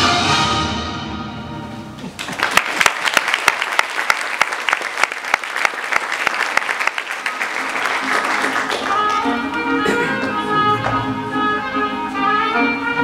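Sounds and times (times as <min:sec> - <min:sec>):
orchestral music: 0:00.0 - 0:02.0, 0:07.4 - 0:13.0
audience applauding: 0:02.0 - 0:10.4.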